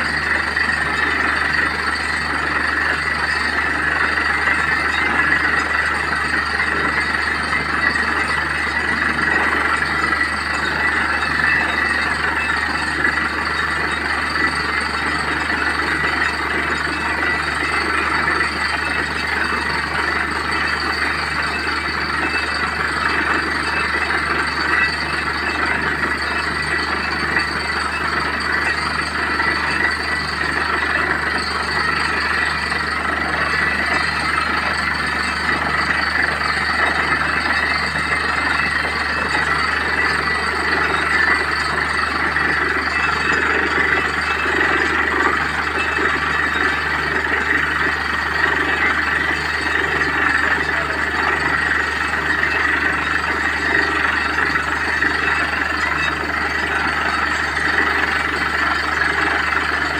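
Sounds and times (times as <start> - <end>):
drilling rig engine droning: 0.0 - 59.9.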